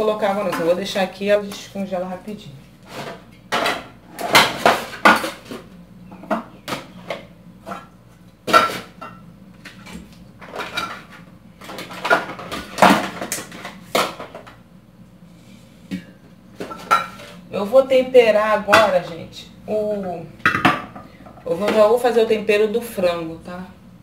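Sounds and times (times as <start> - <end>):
cookware and dishes clattering: 2.9 - 5.6, 8.5 - 14.5, 16.6 - 17.4, 20.4 - 22.0.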